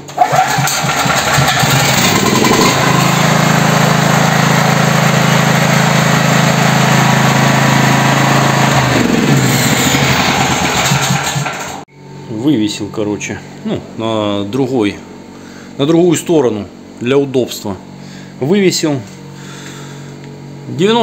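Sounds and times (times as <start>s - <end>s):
generator engine running: 0.0s - 11.9s, 19.1s - 21.0s.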